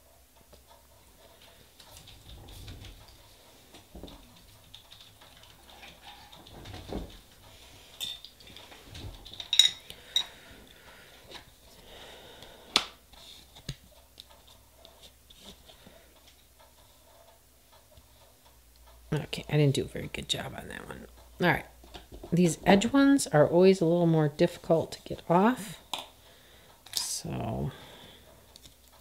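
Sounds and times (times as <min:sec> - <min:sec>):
metal tools clinking on a table: 0:08.0 - 0:08.3, 0:09.4 - 0:10.3.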